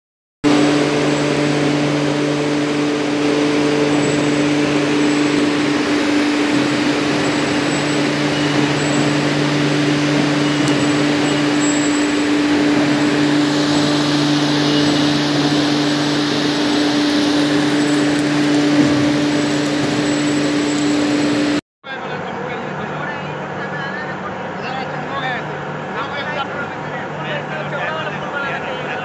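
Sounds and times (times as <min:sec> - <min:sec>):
industrial machinery hum: 0:00.4 - 0:29.0
low machine hum: 0:00.4 - 0:29.0.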